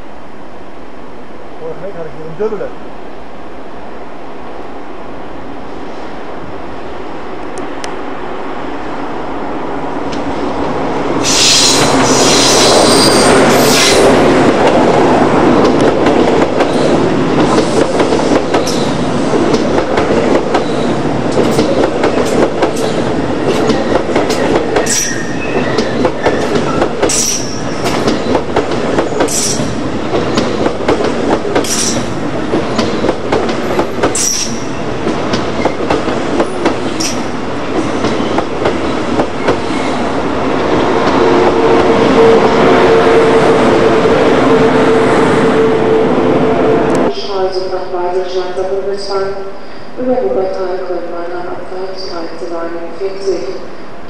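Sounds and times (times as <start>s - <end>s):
train wheels rumbling on rails: 7.3s - 47.3s.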